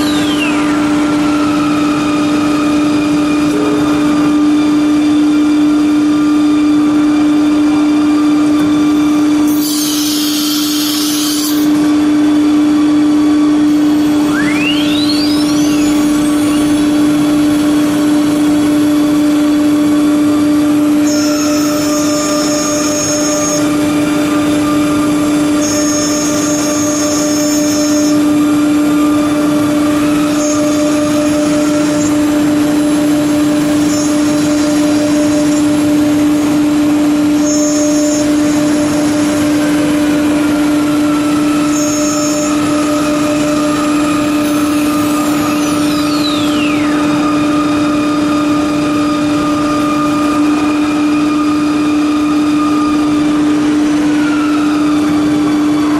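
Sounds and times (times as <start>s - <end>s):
falling whistle: 0.0s - 4.6s, 13.6s - 17.5s, 21.0s - 23.8s, 25.5s - 32.5s, 37.4s - 39.6s, 41.6s - 49.1s, 49.7s - 55.9s
short higher whines: 0.0s - 19.5s, 20.8s - 55.9s
router spindle whining: 0.0s - 55.9s
dust extraction hiss: 9.5s - 11.7s.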